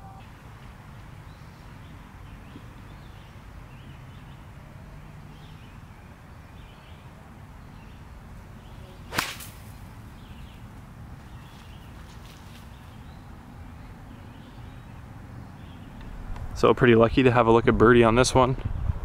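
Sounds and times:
golf ball struck with sharp crack: 9.0s - 9.8s
golf club swish: 9.0s - 9.8s.

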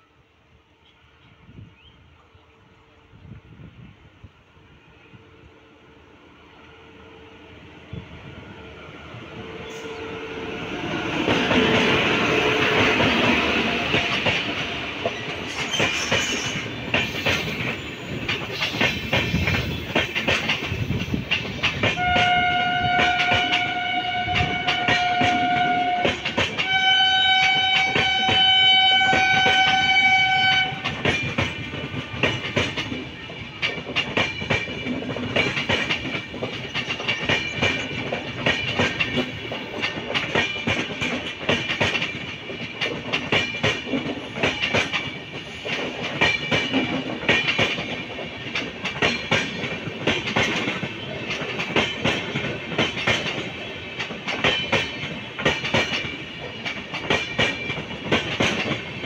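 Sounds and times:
train rumbling past: 0.0s - 59.0s
clickety-clack of train wheels: 9.1s - 59.0s
train horn blasts: 21.9s - 31.0s.

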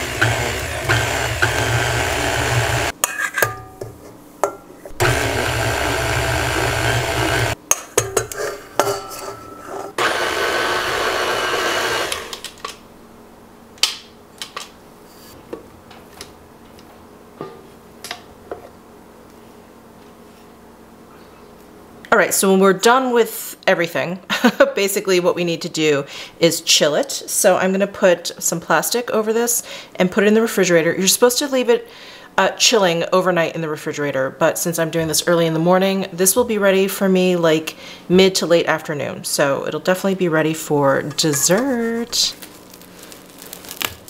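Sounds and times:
stand mixer motor running: 0.0s - 2.9s, 5.0s - 7.6s, 10.0s - 12.4s.

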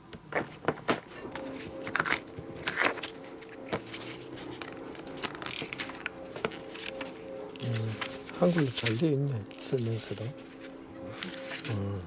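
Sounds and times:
faint background music: 0.0s - 12.0s
paper rustling and clicks: 0.2s - 11.9s.

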